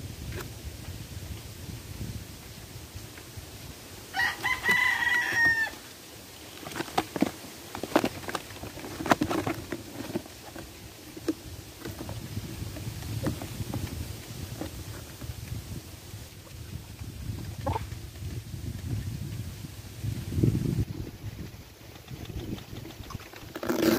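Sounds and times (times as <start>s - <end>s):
rooster crowing: 4.1s - 5.8s
clicks and knocks of plastic box: 6.6s - 14.8s.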